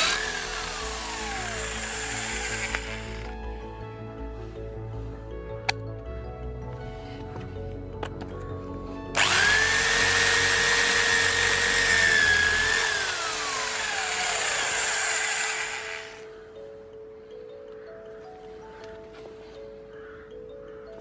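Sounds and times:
hammer drill drilling into stone: 0.0 - 3.4, 9.2 - 16.3.

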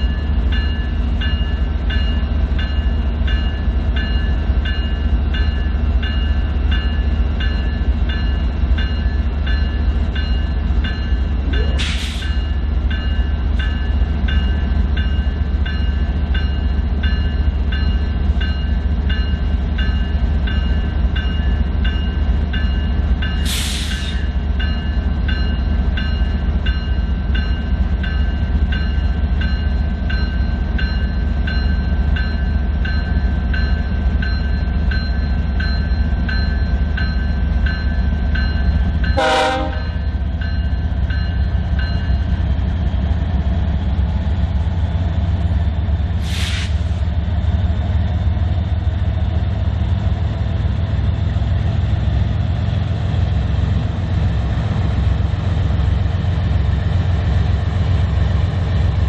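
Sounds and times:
train rumbling: 0.0 - 59.0
short sharp hisses: 11.8 - 12.3, 23.5 - 24.2, 46.2 - 46.9.

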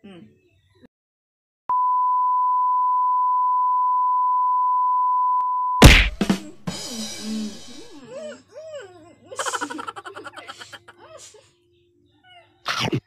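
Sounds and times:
loud whack: 5.8 - 6.5
noisy laughter-like voices: 9.1 - 11.5.

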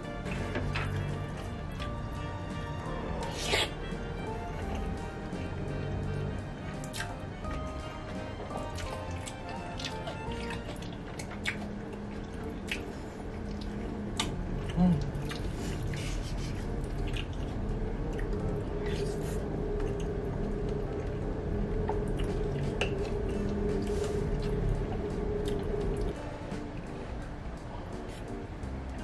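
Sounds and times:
person chewing wetly: 6.7 - 7.2, 8.6 - 16.0, 16.8 - 20.2.

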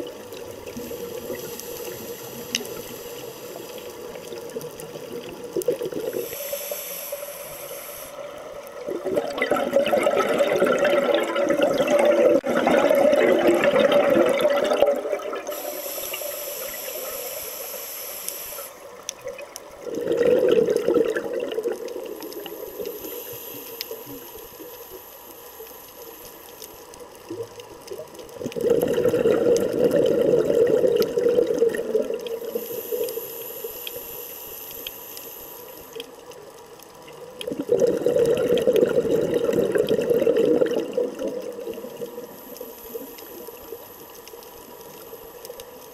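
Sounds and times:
exhaled bubbles underwater: 0.0 - 6.7, 7.5 - 17.7, 18.9 - 24.9, 27.2 - 34.1, 37.0 - 45.6
thin high hiss: 0.7 - 4.4, 6.0 - 8.6, 15.4 - 19.1, 22.1 - 27.0, 32.4 - 36.0, 42.2 - 45.9.

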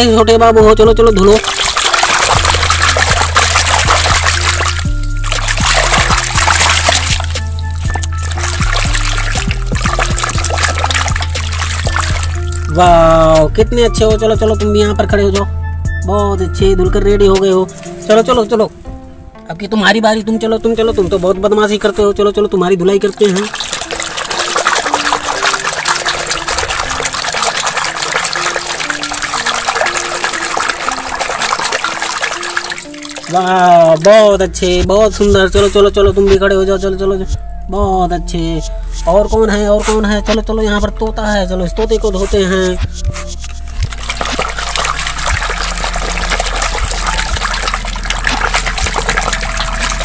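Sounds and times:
splashing in soapy water: 1.3 - 12.8, 23.1 - 34.1, 43.7 - 50.0
soft simple tune: 28.3 - 48.4.

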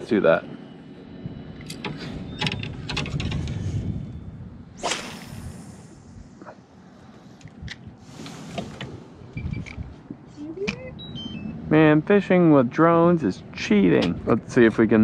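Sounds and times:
fishing rod swishing: 4.8 - 6.0.

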